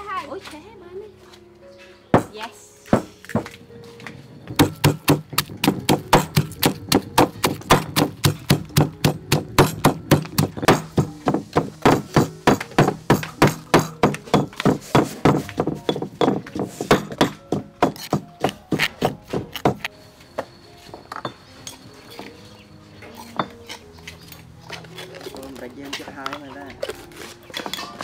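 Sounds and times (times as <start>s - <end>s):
pestle pounding in stone mortar: 2.9s - 3.5s, 4.5s - 19.9s.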